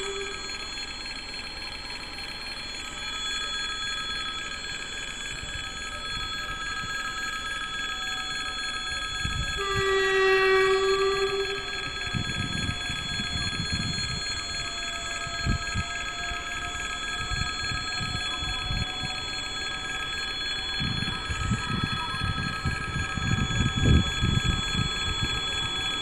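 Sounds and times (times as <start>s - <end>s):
wind buffeting microphone: 12.0s - 14.4s, 20.8s - 26.0s.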